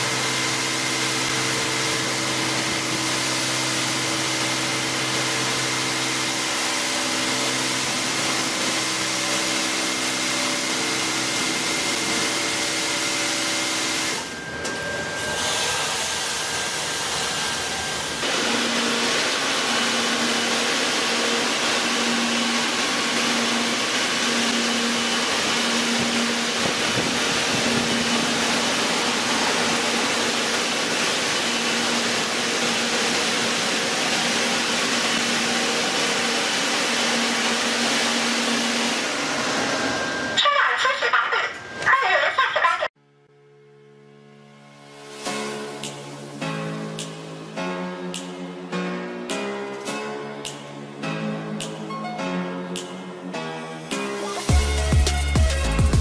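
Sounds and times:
car wash hissing: 0.0s - 40.4s
motor hum: 0.0s - 40.4s
pulsing hum: 24.4s - 35.6s.

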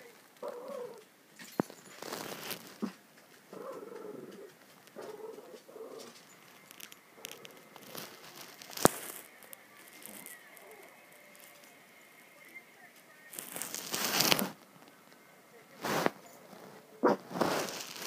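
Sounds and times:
dog grumbling and whining: 0.4s - 1.1s, 2.7s - 6.2s.

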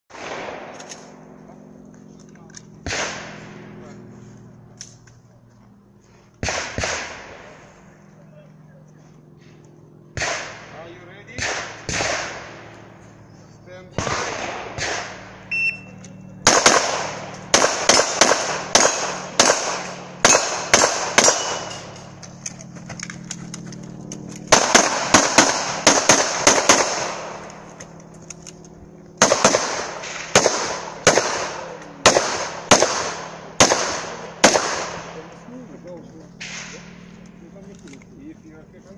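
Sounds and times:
handgun firing rapid shots: 14.0s - 15.3s, 16.4s - 22.0s, 24.3s - 27.9s, 29.2s - 35.1s
shot timer beep: 15.5s - 16.3s.

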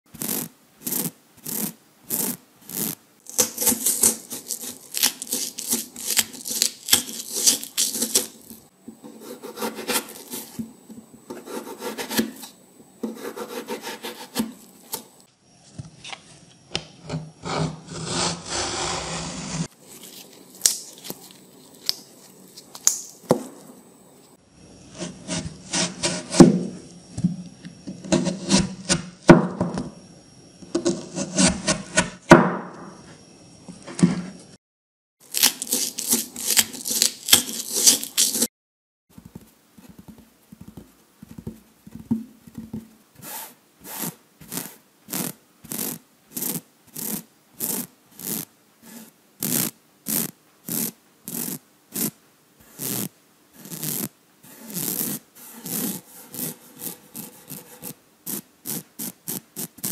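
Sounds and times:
peeler scraping: 0.1s - 10.6s, 35.2s - 38.5s, 43.2s - 59.9s
knife slicing vegetables: 0.2s - 10.7s, 11.3s - 15.1s, 35.2s - 38.5s.

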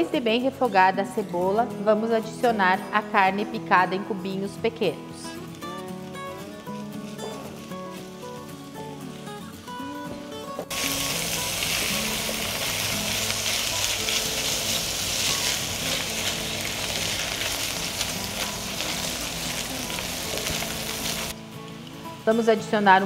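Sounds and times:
background music: 0.0s - 23.0s
meat sizzling in a frying pan: 10.7s - 21.3s
spatula stirring: 10.7s - 21.3s.

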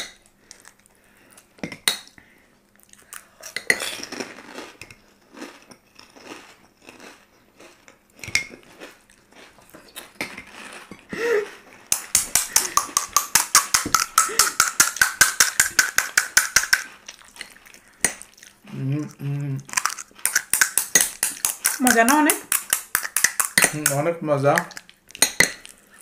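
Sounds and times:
crunching and chewing: 2.7s - 13.3s, 16.4s - 23.9s, 24.6s - 26.0s.

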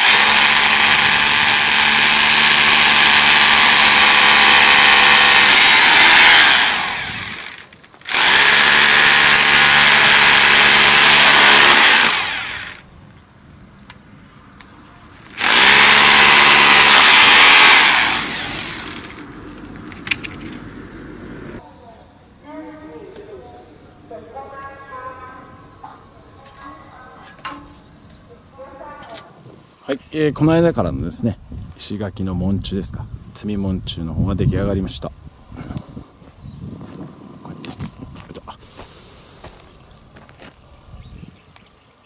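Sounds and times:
power drill boring into stone: 0.0s - 12.8s, 15.3s - 19.2s.

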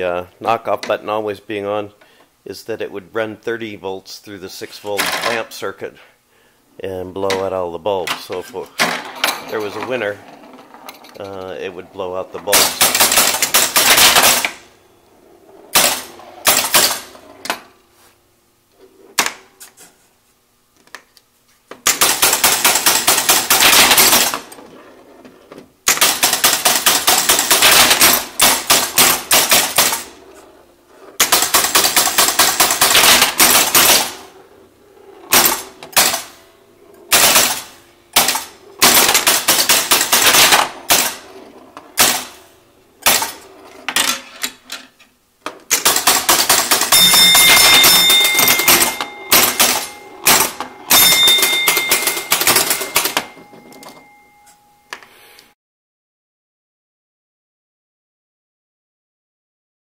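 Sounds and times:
pinball machine relays clattering: 4.9s - 5.4s, 7.2s - 14.7s, 15.7s - 17.7s, 21.8s - 24.7s, 25.8s - 30.2s, 31.2s - 34.4s, 35.0s - 45.0s, 45.7s - 54.4s.

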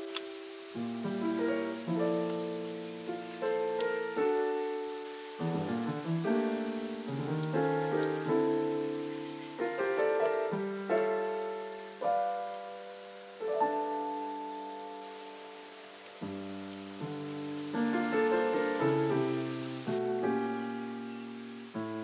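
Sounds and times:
gentle piano chords: 0.0s - 22.0s.

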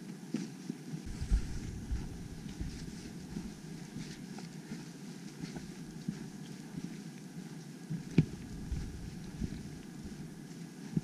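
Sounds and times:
footsteps on dirt trail: 1.0s - 6.8s, 8.0s - 11.0s
wind on microphone: 1.1s - 4.2s, 8.0s - 11.0s.

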